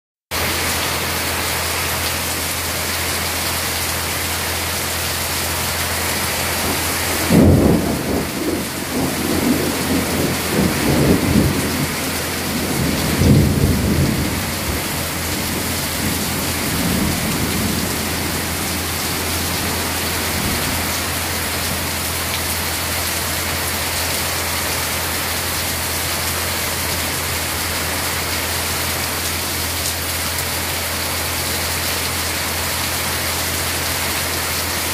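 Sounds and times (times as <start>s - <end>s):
heavy rain pouring: 0.3s - 34.9s
thunder rumbling: 6.5s - 25.3s.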